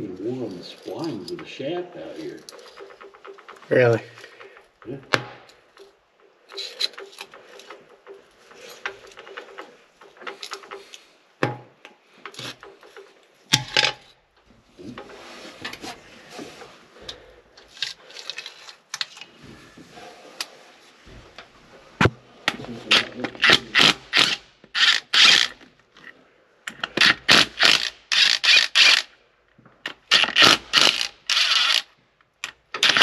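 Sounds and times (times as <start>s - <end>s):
metal tools clinking and knocking: 0.2s - 4.6s, 5.5s - 14.2s
metal scraping and rubbing: 5.8s - 11.1s, 14.7s - 17.1s.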